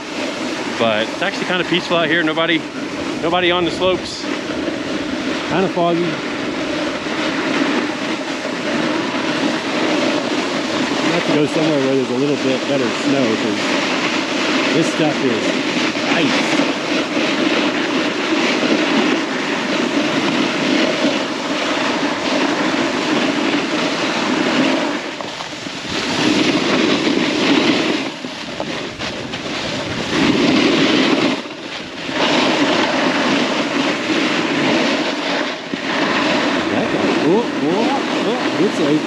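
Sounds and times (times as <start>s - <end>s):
snowboard scraping on ice: 0.0s - 39.0s.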